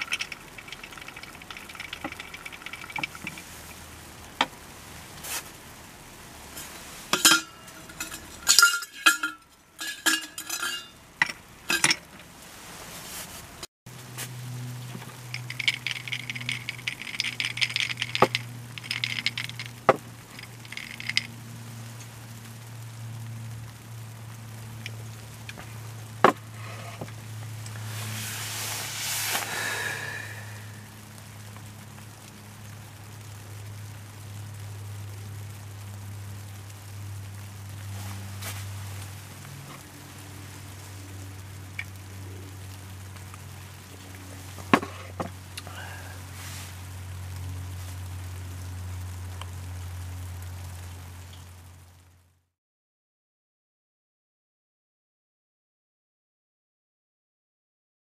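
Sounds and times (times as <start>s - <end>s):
ice cubes clinking in a glass: 0.0s - 3.5s, 15.3s - 19.8s, 20.4s - 21.3s.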